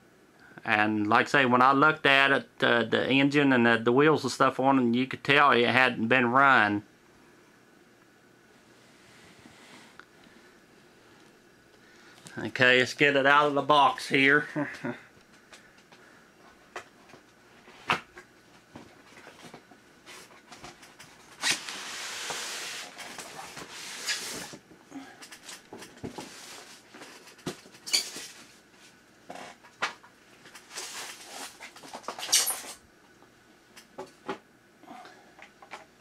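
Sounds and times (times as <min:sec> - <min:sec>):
packing rustling and scraping: 0:16.5 - 0:24.7, 0:25.3 - 0:29.7, 0:30.4 - 0:32.8.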